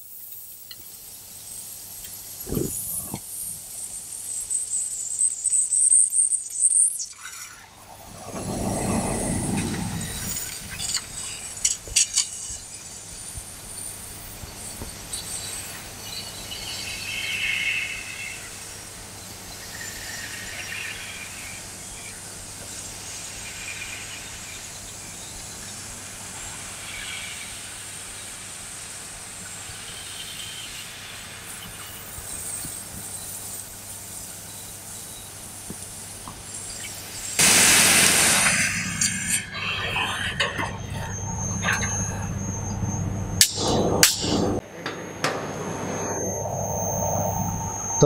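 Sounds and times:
sparks crackling and spitting: 9.6 - 12.9
laser cutting hiss: 10.0 - 40.6.

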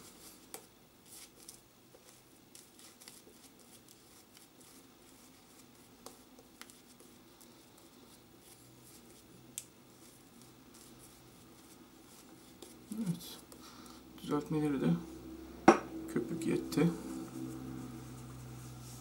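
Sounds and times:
shaving brush swishing: 16.8 - 19.0.

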